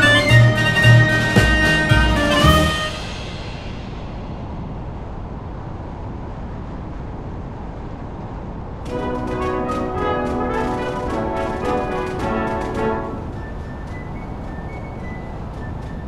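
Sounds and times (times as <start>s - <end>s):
brass music: 0.0s - 3.7s, 8.9s - 13.6s
car tyre noise in tunnel: 3.0s - 9.0s.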